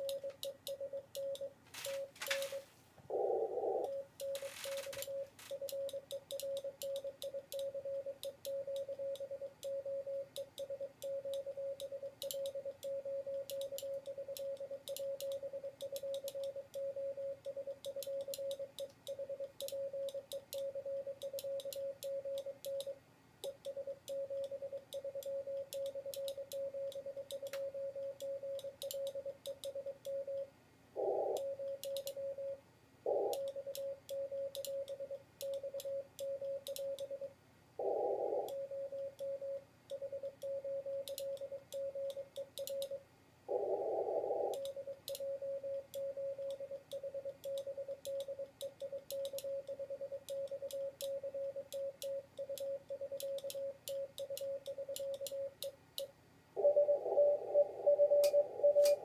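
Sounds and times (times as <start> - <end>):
morse code tone: 0.0 - 2.7, 3.7 - 23.0, 56.6 - 59.0.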